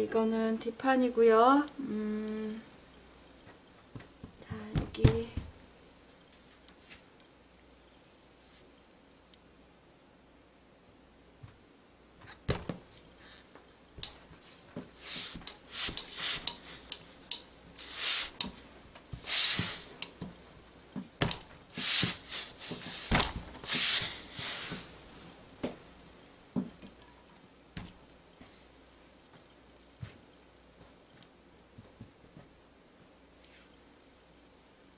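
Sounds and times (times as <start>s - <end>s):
iron swishing over fabric: 14.2s - 20.1s, 21.7s - 25.0s.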